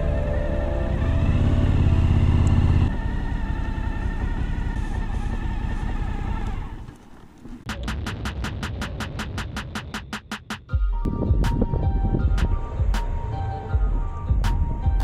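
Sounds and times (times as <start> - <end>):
motorcycle engine running: 0.0 - 7.7
road and wind noise: 0.0 - 7.7, 11.0 - 15.0.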